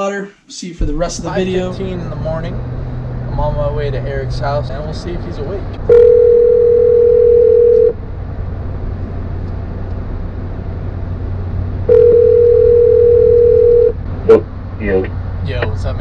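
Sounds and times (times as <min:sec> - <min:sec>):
steady low hum: 0:00.6 - 0:16.0
telephone ringback tone: 0:05.9 - 0:08.0, 0:11.9 - 0:14.0.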